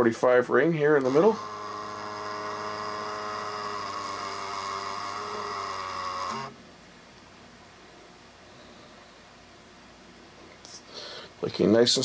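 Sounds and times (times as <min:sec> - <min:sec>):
camera mechanism groaning drone: 0:01.0 - 0:06.6.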